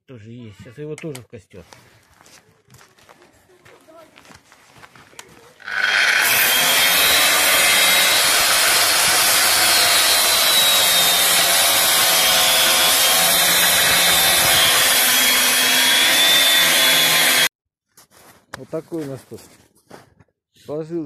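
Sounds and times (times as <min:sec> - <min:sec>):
angle grinder cutting copper: 0:05.6 - 0:17.5.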